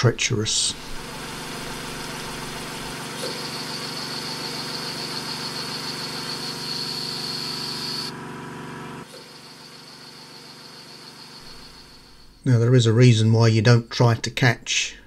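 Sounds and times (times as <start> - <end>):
lathe running: 0.5 - 8.2, 8.8 - 12.4.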